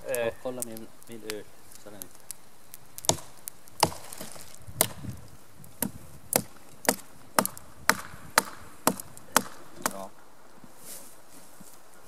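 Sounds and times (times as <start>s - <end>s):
axe chopping branch: 3.0s - 5.1s, 5.8s - 10.1s.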